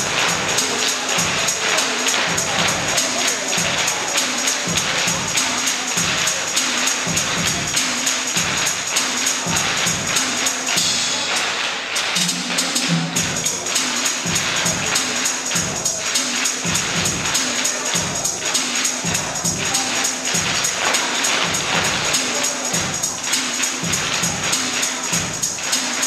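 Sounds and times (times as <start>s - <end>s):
irish dance music: 0.0s - 26.0s.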